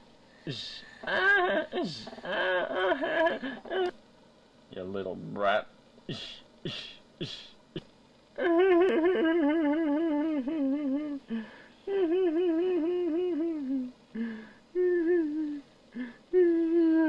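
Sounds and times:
cartoon boy sobbing: 0.5 - 3.9, 8.4 - 17.0.

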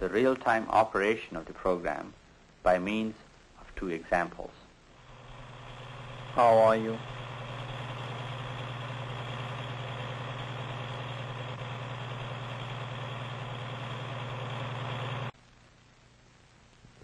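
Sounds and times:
low machine hum with hiss: 0.0 - 17.0.

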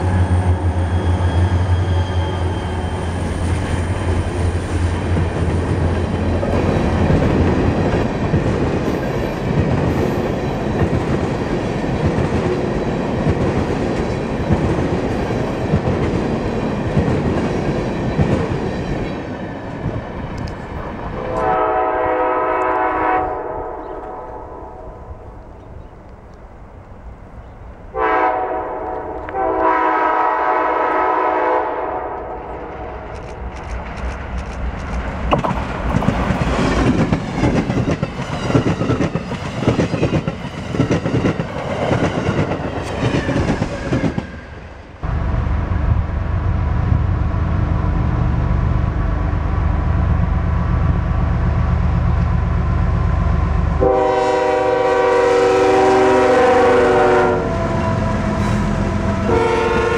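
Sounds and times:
train passing with rush of noise: 0.0 - 59.9
train horn: 21.2 - 25.1, 27.9 - 32.8, 53.8 - 59.9.

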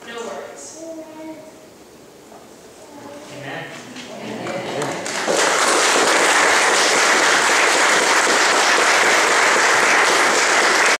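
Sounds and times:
congregation applauding: 4.4 - 11.0.

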